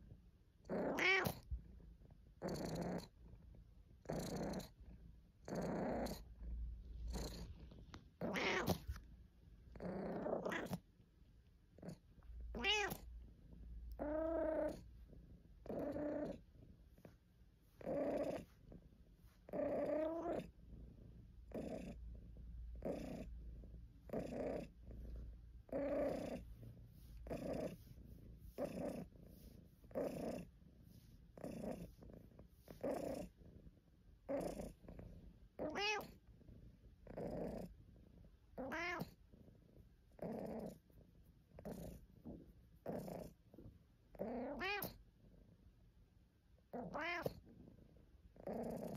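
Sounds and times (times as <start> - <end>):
cat purring: 0.0 - 48.9
cat grumbling: 0.6 - 1.4, 8.2 - 8.9, 9.7 - 10.8, 11.8 - 13.0, 15.7 - 16.4.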